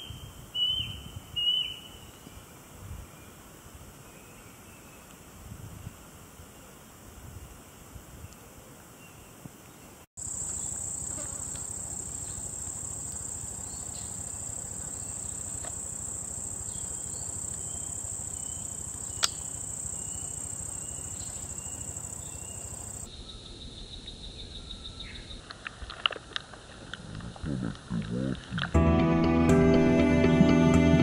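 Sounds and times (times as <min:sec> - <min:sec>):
low insect whine: 0:00.0 - 0:25.4
sharp click: 0:19.2 - 0:19.4.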